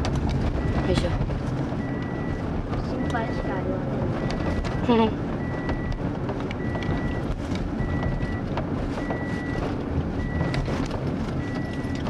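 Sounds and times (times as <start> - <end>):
car engine and road rumble: 0.0 - 12.0
electronic warning beep: 0.6 - 1.1, 4.2 - 6.0, 6.6 - 8.4, 9.0 - 9.6, 10.2 - 10.6, 11.4 - 12.0.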